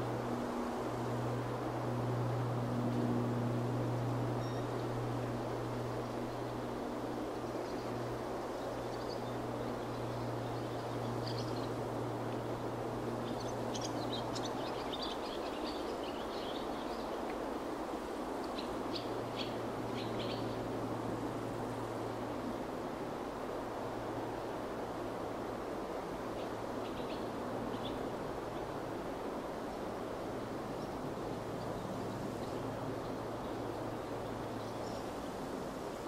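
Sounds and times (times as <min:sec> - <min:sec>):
rushing wind: 0:00.0 - 0:36.0
small birds chirping: 0:07.4 - 0:11.9, 0:13.2 - 0:17.4, 0:18.4 - 0:20.7, 0:26.3 - 0:28.8.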